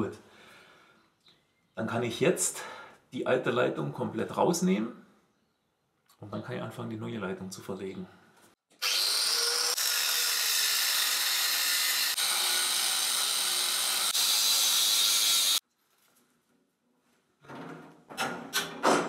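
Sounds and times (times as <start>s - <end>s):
angle grinder cutting steel pipe: 8.7s - 15.6s.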